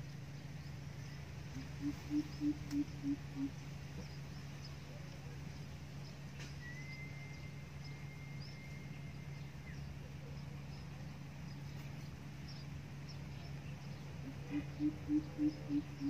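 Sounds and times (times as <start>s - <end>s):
steady low hum: 0.0s - 16.0s
bird hooting low: 1.5s - 3.6s, 14.2s - 16.0s
thin high whistle: 6.6s - 9.1s.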